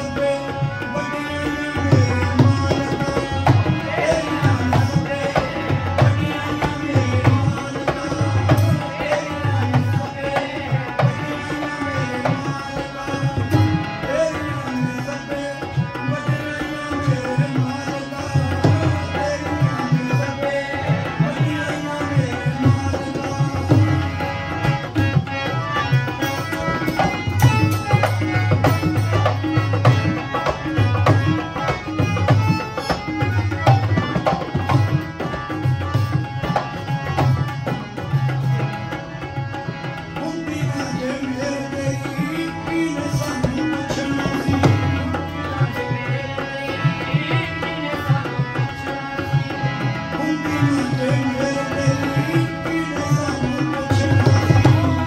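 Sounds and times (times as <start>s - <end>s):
harmonium sustained notes: 0.0s - 55.0s
hand drum rhythm: 20.8s - 38.6s, 42.3s - 45.4s, 52.3s - 55.0s.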